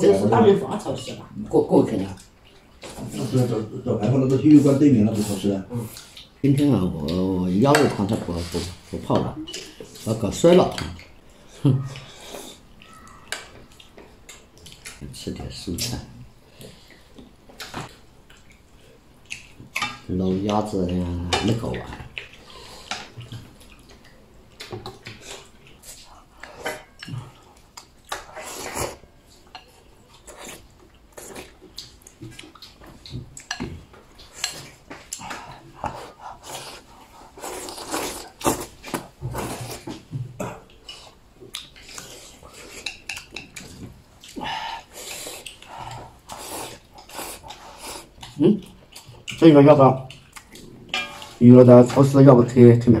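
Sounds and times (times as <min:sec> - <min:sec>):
eating noises: 0:11.0 - 0:15.9, 0:20.4 - 0:51.4.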